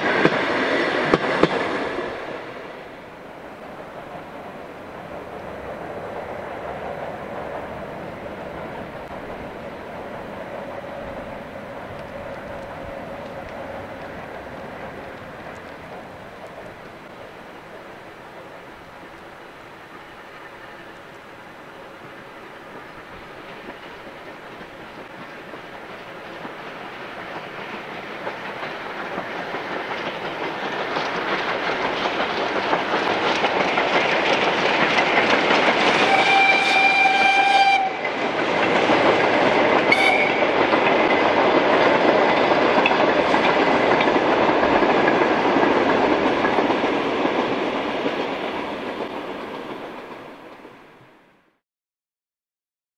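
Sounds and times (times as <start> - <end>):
steam train running past: 0.0 - 51.6
wheels rattling over rails: 22.0 - 50.8
steam locomotive whistle: 35.9 - 38.1, 39.9 - 40.6.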